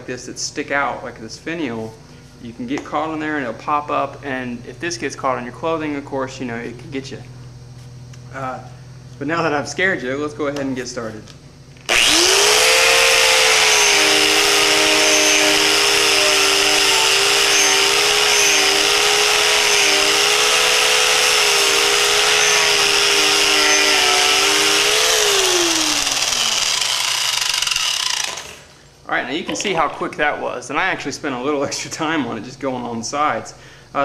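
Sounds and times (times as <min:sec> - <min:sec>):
angle grinder with wire brush: 0:11.9 - 0:28.7.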